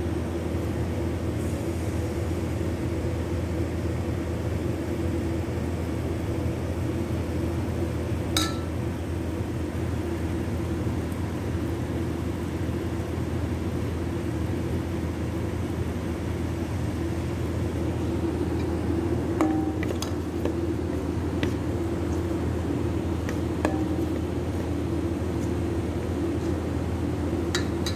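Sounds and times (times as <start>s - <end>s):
low mechanical hum: 0.0s - 27.9s
metallic clink: 8.4s - 8.7s.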